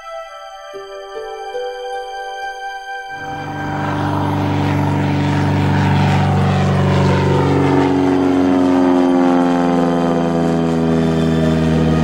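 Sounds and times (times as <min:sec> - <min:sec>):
propeller plane droning overhead: 0:00.0 - 0:12.0.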